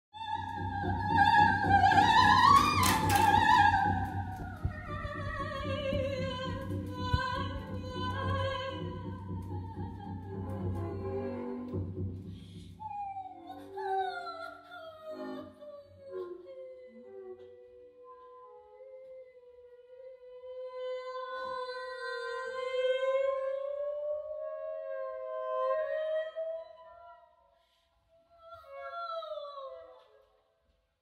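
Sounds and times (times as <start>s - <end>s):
woman singing with vibrato: 0.1s - 11.8s, 12.8s - 17.4s, 20.2s - 26.8s.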